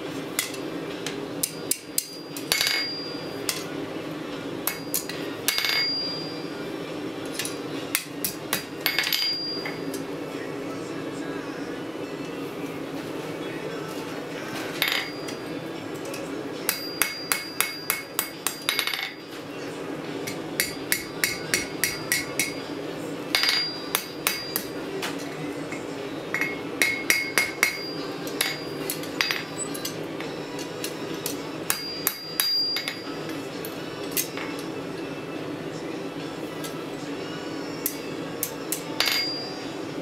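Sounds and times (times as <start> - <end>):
hammer striking steel on anvil: 0.4 - 0.6, 1.4 - 3.7, 4.7 - 6.4, 7.4 - 10.0, 14.8 - 15.4, 16.7 - 19.2, 20.3 - 22.6, 23.3 - 24.8, 26.4 - 30.0, 31.2 - 33.1, 38.7 - 39.5
anvil ringing: 1.4 - 3.6, 4.7 - 6.4, 8.8 - 9.9, 16.7 - 19.2, 23.4 - 24.8, 26.4 - 29.6, 31.7 - 33.1, 39.0 - 39.6.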